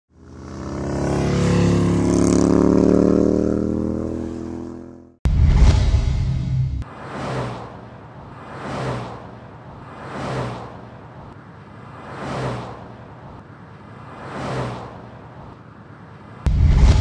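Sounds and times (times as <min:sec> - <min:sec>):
whoosh sound effects: 0:16.5 - 0:17.0.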